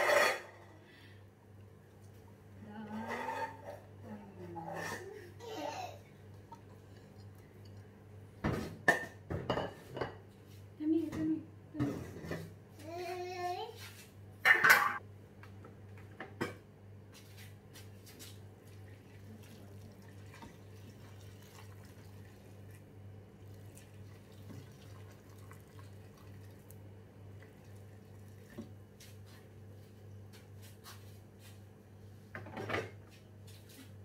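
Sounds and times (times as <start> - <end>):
low steady hum: 0.4 - 12.4, 18.6 - 30.7
water pouring into pot: 19.1 - 22.8, 23.4 - 28.6.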